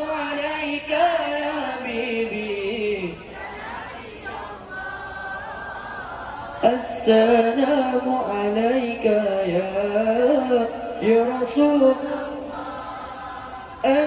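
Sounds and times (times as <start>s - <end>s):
man singing devotional song: 0.0s - 3.4s, 6.6s - 12.6s, 13.7s - 14.0s.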